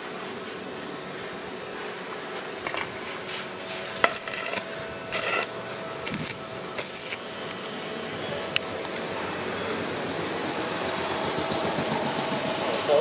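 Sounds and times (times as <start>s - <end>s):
welding arc crackling: 3.8s - 7.6s.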